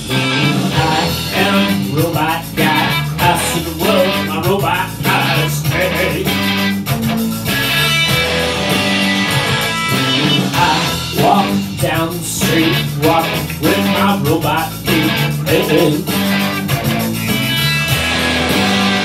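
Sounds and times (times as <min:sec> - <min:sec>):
electric guitar rock chords: 0:00.0 - 0:19.0
man singing: 0:00.1 - 0:06.6, 0:10.5 - 0:16.2.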